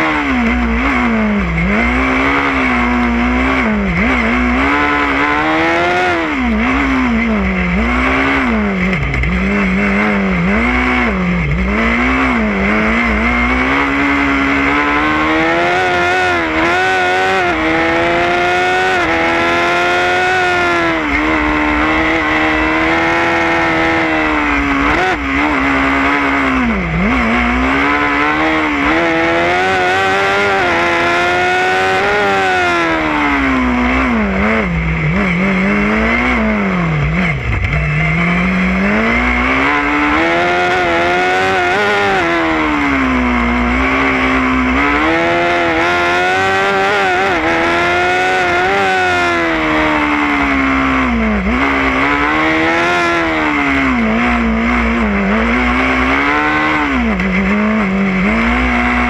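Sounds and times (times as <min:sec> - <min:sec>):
race car engine revving: 0:00.0 - 0:59.0.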